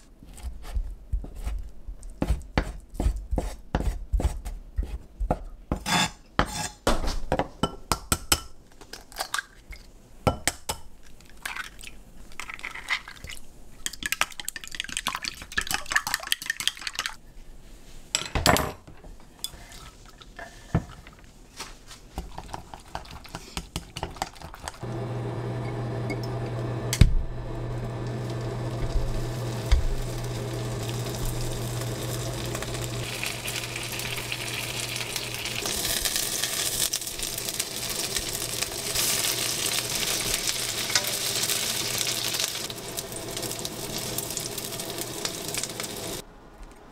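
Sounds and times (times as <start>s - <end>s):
utensils and dishes clinking: 40.8s - 41.5s.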